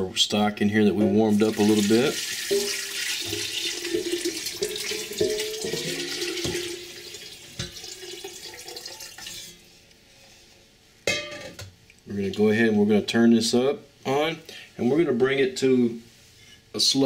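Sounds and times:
stock pouring and splashing into pot: 1.3 - 9.7.

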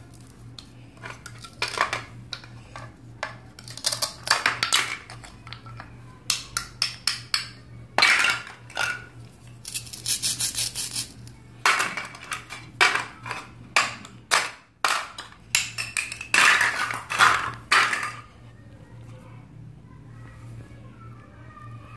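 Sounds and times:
plastic toy pieces clacking: 1.0 - 9.0, 9.6 - 18.2.

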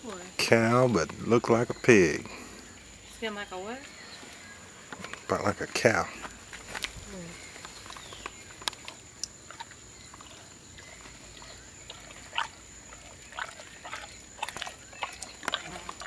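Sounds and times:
animal snuffling and chewing: 3.9 - 16.0.

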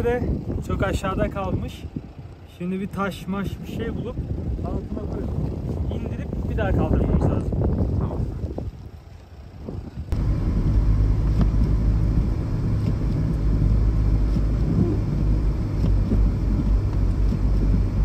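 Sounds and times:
car driving rumble: 3.6 - 18.0.

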